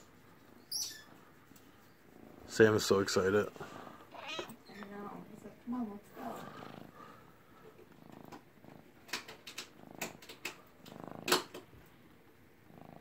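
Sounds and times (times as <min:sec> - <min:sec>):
cat purring: 0:01.5 - 0:13.0
sharp clicks: 0:09.0 - 0:11.7.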